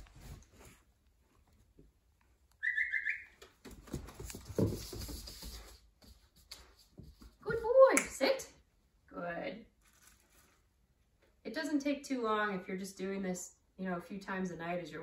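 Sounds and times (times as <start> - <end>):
high stepped whistle call: 2.6 - 3.4
puppy paws on hardwood floor: 3.3 - 8.2.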